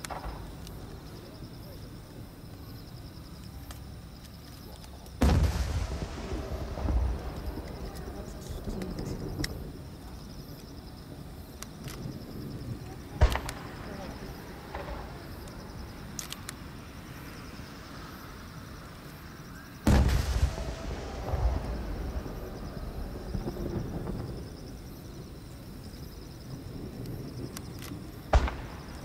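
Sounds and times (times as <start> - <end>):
heavy boom with low rumble: 5.2 - 9.6, 19.9 - 24.6
firework shells exploding: 5.2 - 9.8, 12.8 - 16.6, 19.8 - 24.8, 27.1 - 29.0.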